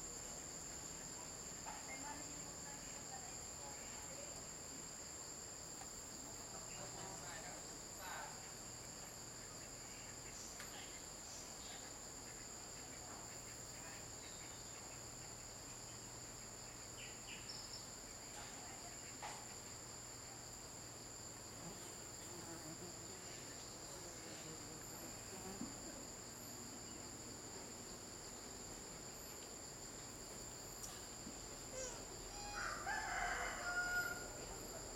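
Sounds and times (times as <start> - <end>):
insects droning in chorus: 0.0 - 34.9.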